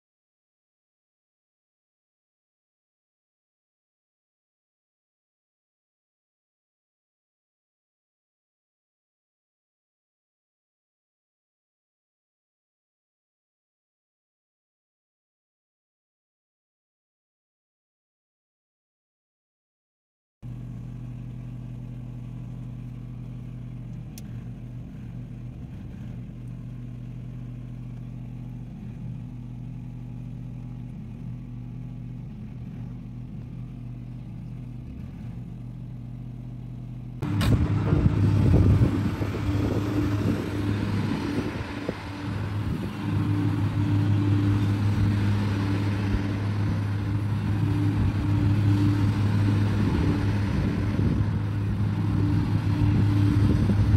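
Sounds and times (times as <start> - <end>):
excavator diesel engine: 20.4 - 53.9.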